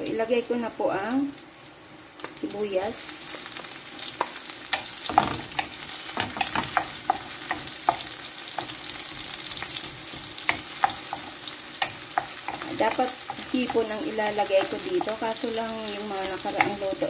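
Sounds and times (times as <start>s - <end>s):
onion sizzling in hot oil: 0.0s - 17.0s
wooden spatula scraping a pan: 4.1s - 17.0s.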